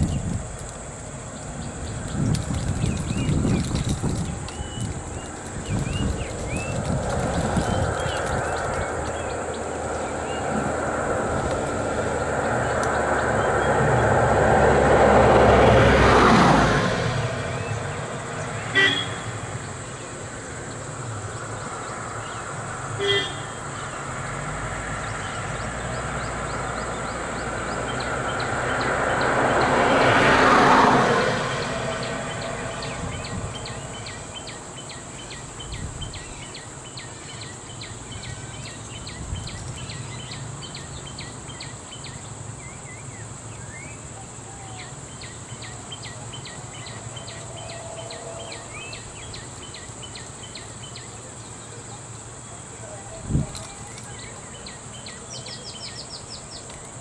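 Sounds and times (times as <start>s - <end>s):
insects chirping: 0.0s - 57.0s
car driving past: 6.6s - 20.0s, 21.1s - 35.0s
short car horn toot: 18.8s - 19.2s.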